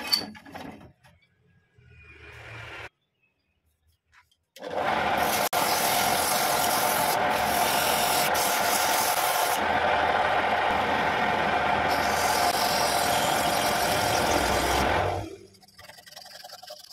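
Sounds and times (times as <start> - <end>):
wood lathe running: 4.6 - 16.9
turning tool scraping wood: 4.7 - 9.6, 11.9 - 16.9.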